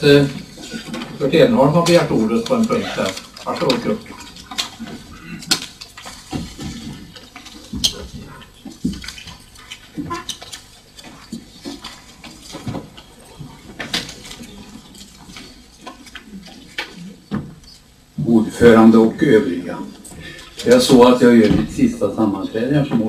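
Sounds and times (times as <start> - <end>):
paper rustling: 0.0 - 17.9.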